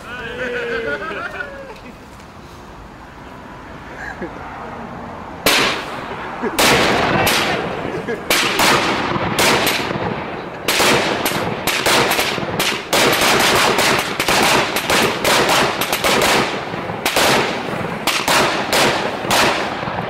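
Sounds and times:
fireworks bangs and crackling: 5.4s - 20.0s.

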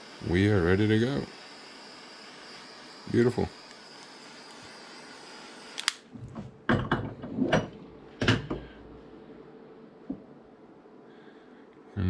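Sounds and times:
torch lighter hissing: 0.0s - 6.1s
torch switch click: 3.6s - 4.7s, 5.7s - 6.1s.

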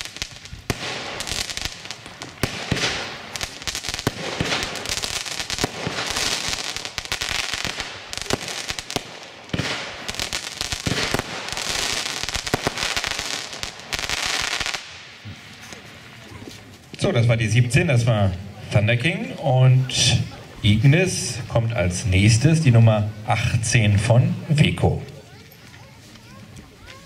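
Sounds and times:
firework shots and bangs: 0.0s - 15.8s
firework hiss: 0.0s - 16.2s.

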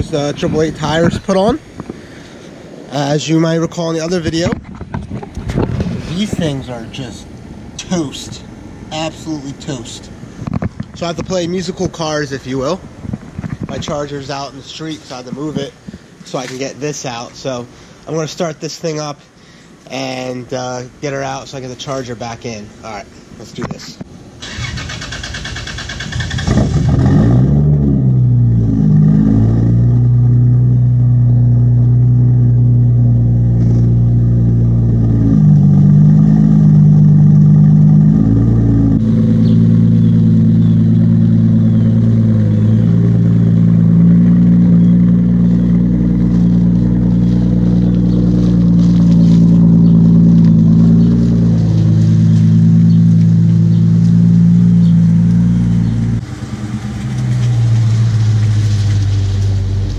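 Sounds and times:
car engine idling: 24.1s - 59.9s
car creeping past: 24.5s - 59.9s.

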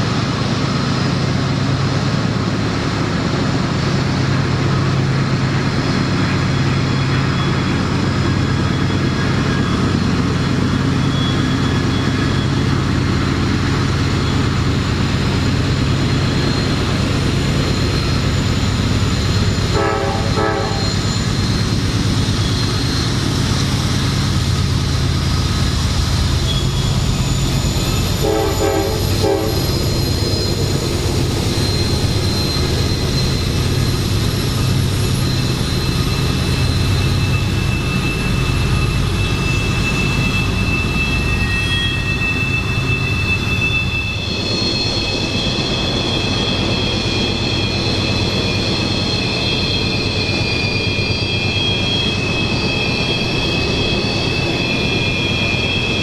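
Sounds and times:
diesel locomotive engine drone: 0.0s - 56.0s
train horn blasts: 19.7s - 21.1s, 28.2s - 29.9s.

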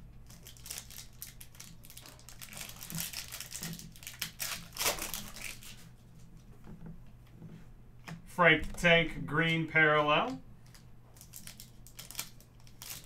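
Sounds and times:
crackling rustles: 0.0s - 7.7s, 10.6s - 13.0s
foil wrapper crinkling: 0.2s - 5.9s, 10.6s - 13.0s.

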